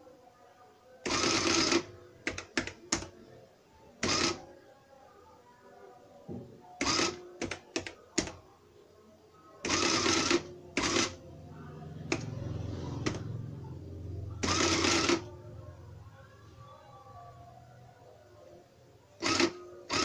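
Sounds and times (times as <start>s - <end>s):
printing calculator print mechanism: 1.0s - 3.2s, 4.0s - 4.5s, 6.8s - 8.4s, 9.6s - 11.2s, 12.0s - 13.3s, 14.3s - 15.4s, 19.2s - 20.0s.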